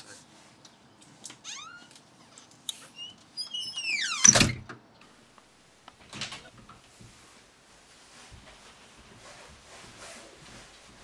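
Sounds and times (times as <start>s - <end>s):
door hinges creaking: 1.4s - 4.8s
door shutting with thud: 4.0s - 4.8s.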